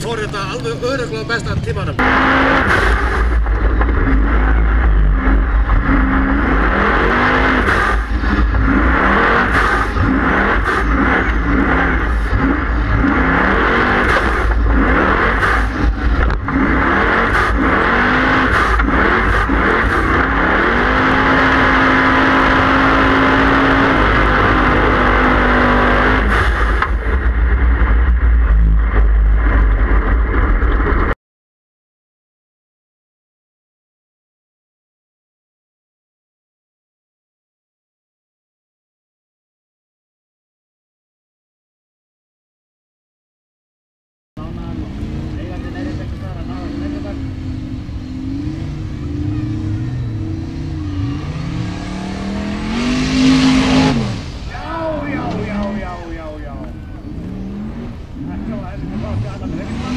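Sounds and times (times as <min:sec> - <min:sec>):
heavy low rumble: 0:00.0 - 0:31.2, 0:44.4 - 0:59.9
racing engine revving hard: 0:00.4 - 0:29.8, 0:44.4 - 0:59.9.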